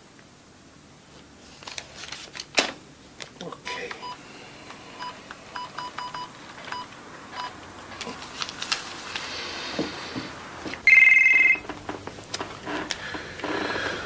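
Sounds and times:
telephone keypad beeps: 5.0 - 7.6, 10.8 - 11.7
electronic telephone ringing: 10.8 - 11.7.

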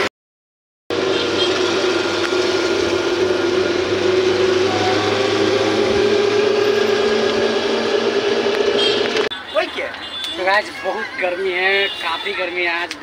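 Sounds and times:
motor hum: 0.9 - 9.3
rushing noise: 0.9 - 9.3.

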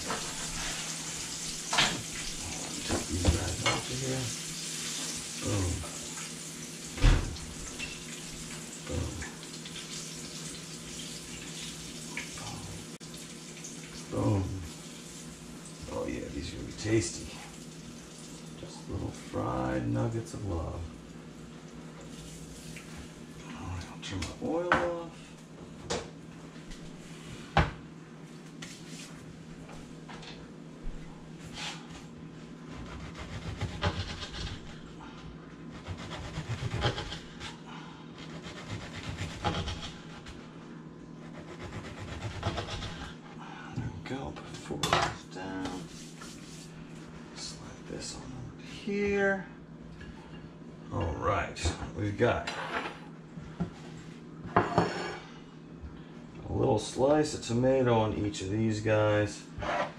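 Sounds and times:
fish sizzling in oil: 0.0 - 15.8
knife sawing through bread crust: 32.7 - 34.9, 35.7 - 37.6, 38.2 - 40.5, 41.2 - 43.4.

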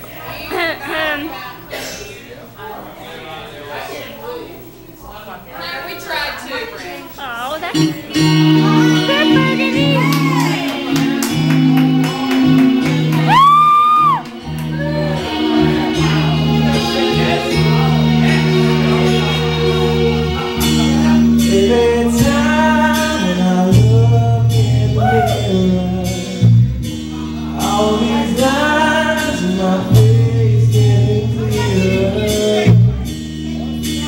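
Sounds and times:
backing track with bass notes: 7.7 - 34.0
man singing into a microphone: 15.0 - 33.2.

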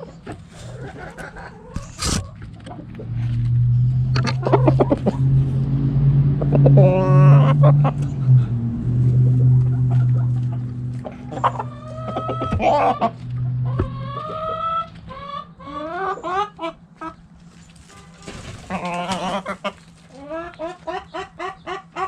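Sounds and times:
steady low hum: 0.0 - 18.4
chickens clucking and calling: 0.0 - 22.0.

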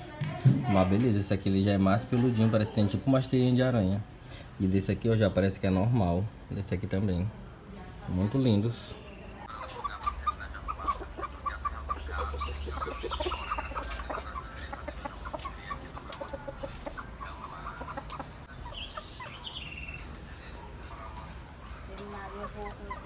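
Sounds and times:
chickens clucking: 0.0 - 23.0.

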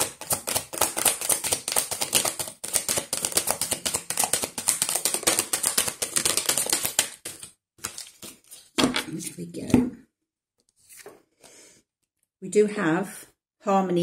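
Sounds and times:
cards being shuffled: 0.0 - 9.7, 10.7 - 11.2.

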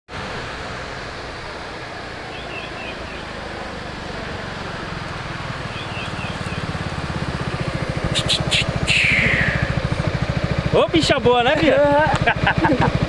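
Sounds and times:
scooter engine running: 2.4 - 13.0
high squeal falling in pitch: 8.1 - 9.8
short high clicks: 8.1 - 9.8.

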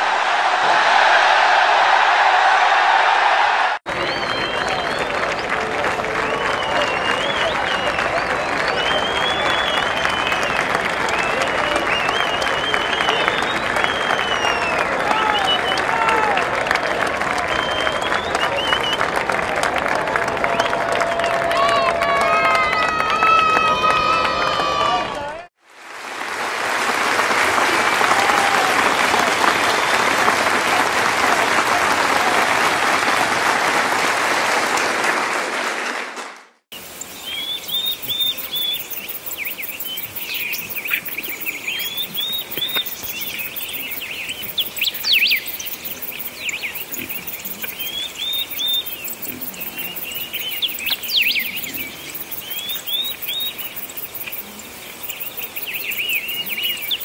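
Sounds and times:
crowd applauding: 0.0 - 36.7, 37.8 - 57.0
bird chirping: 36.8 - 57.0
sharp clicks: 38.7 - 54.4.

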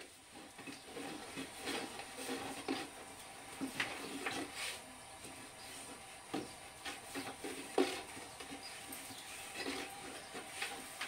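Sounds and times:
light wooden knocks and rubbing: 0.0 - 11.0
rolling pin rolling dough on board: 0.0 - 11.0.

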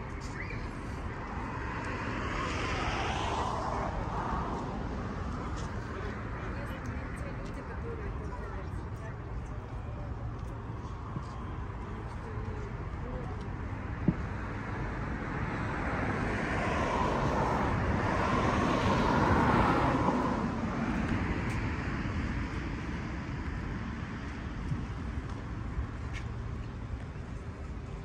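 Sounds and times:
low street rumble: 0.0 - 28.0
vehicle passing by: 0.3 - 8.0, 15.0 - 22.6.

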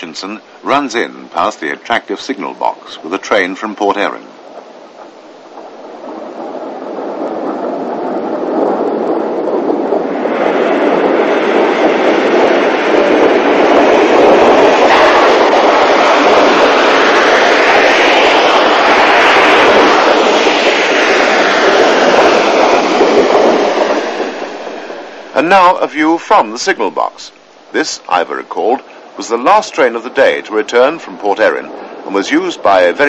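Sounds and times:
steam train arriving: 10.4 - 29.8.

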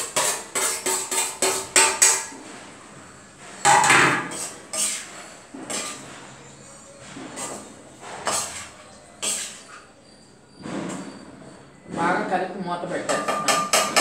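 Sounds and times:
spoon knocking in frying pan: 0.0 - 2.4, 13.1 - 14.0.

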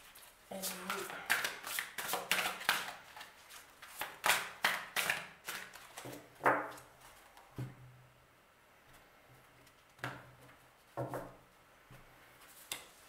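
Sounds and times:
cards being shuffled: 0.1 - 7.4.

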